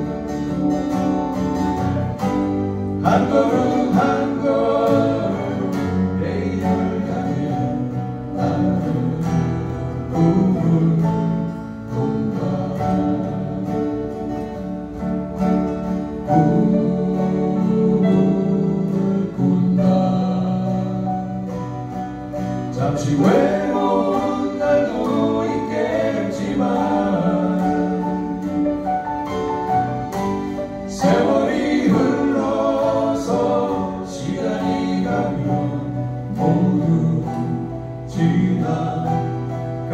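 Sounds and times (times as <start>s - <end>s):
acoustic guitars: 0.0s - 39.9s
bass guitar: 0.0s - 39.9s
person singing: 3.0s - 14.6s, 16.2s - 21.7s, 22.7s - 28.8s.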